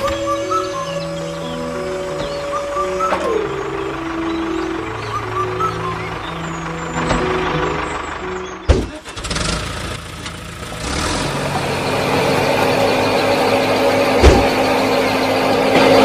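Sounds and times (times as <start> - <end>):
motor humming: 0.0 - 16.0
sharp thump: 14.2 - 14.5.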